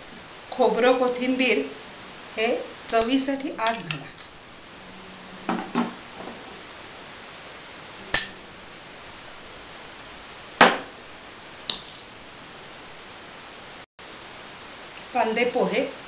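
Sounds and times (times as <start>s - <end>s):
steady low hiss: 0.0s - 16.0s
spoon clinking on glass bowl: 8.1s - 8.4s.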